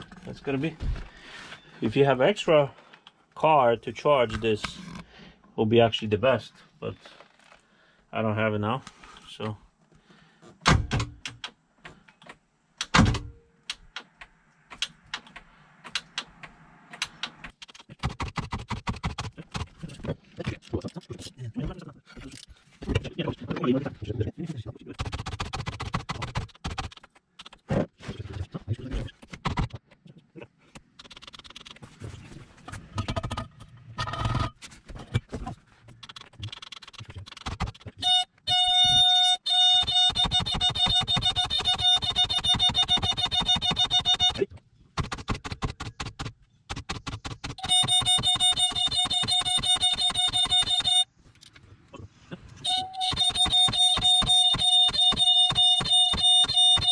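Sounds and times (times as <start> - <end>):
sharp clicks: 13.6 - 19.7.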